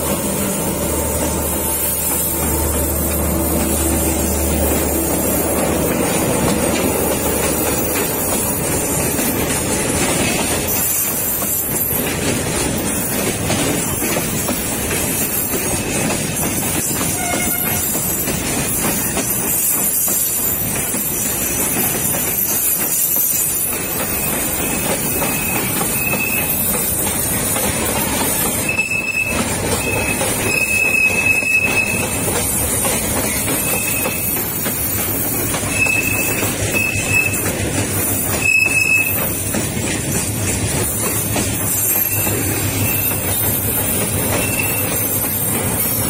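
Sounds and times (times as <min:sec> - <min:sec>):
train wheels rumbling on rail: 0:00.0 - 0:46.0
high-pitched wheel squeals: 0:17.0 - 0:18.4, 0:19.0 - 0:27.1, 0:28.1 - 0:39.5, 0:41.1 - 0:46.0.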